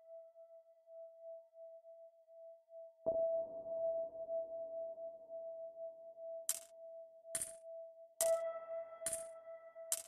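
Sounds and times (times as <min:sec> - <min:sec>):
electronic ambient music: 0:00.0 - 0:10.0.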